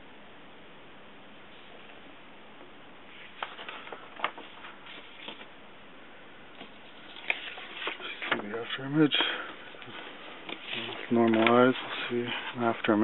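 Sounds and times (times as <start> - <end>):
steady hiss: 0.0 - 13.0
paper pages rustling: 3.1 - 5.6, 6.6 - 13.0.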